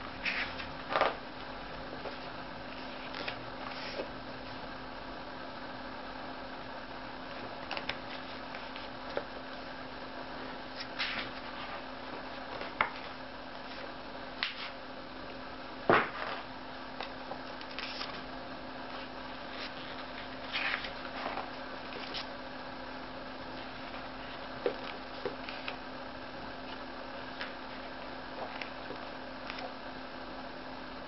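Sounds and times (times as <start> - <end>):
low hum and hiss: 0.0 - 31.0
book pages turning: 2.1 - 4.1, 10.7 - 14.8, 17.0 - 18.2, 18.9 - 22.3, 28.4 - 29.7.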